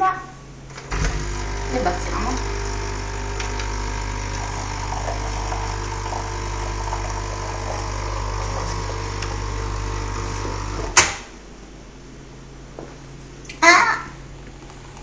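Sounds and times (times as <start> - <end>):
coffee machine pump buzzing: 0.7 - 11.2.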